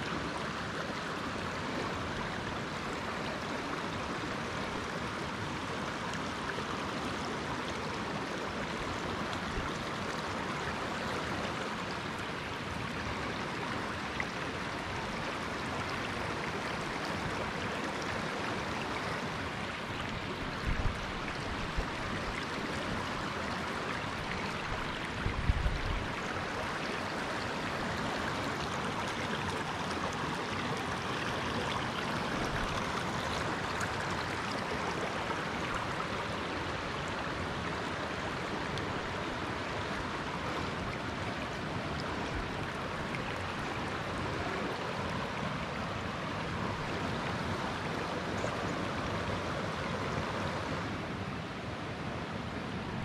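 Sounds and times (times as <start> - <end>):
river rapids rushing over rocks: 0.0 - 53.0.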